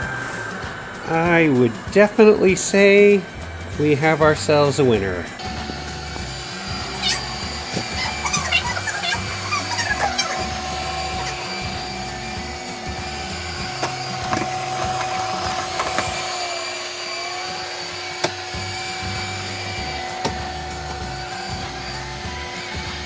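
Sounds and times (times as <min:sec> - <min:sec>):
robot vacuum motor whine: 0:05.2 - 0:23.0.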